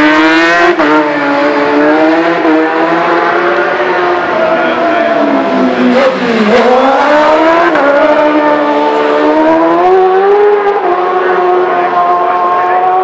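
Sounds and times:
motorcycle engine revving high: 0.0s - 13.0s.

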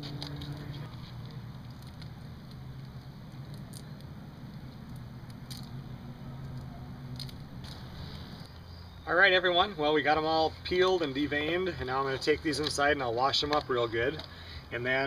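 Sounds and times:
low hum: 0.0s - 9.1s
shells cracking: 1.5s - 8.5s.

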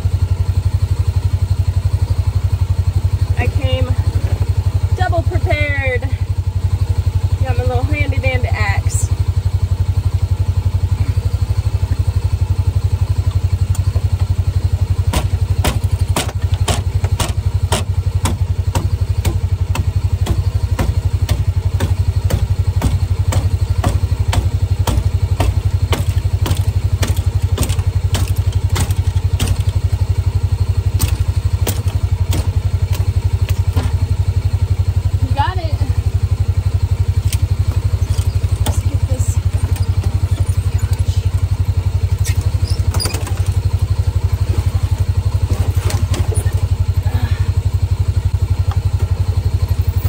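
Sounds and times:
utility vehicle engine idling: 0.0s - 50.0s
hatchet hammering knocks: 15.0s - 29.8s, 31.0s - 34.0s.

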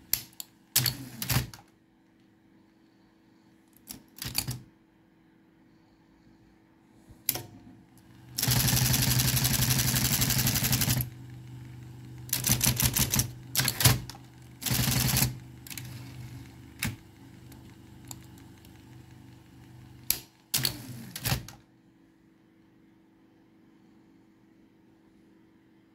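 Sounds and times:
typewriter motor hum: 0.0s - 1.6s, 8.2s - 21.6s.

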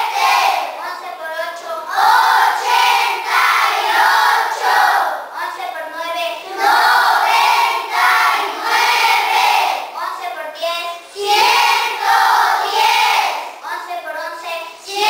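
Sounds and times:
children chanting in unison: 0.0s - 0.9s, 1.7s - 5.4s, 6.1s - 10.0s, 10.7s - 13.7s, 14.5s - 15.0s.

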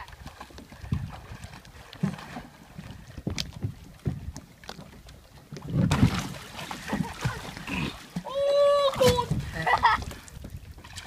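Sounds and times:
loud splash: 5.8s - 9.8s.

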